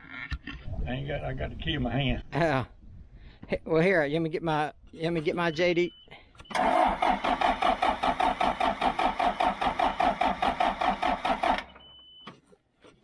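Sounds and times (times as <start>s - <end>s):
diesel engine cranking on starter: 6.4s - 11.9s.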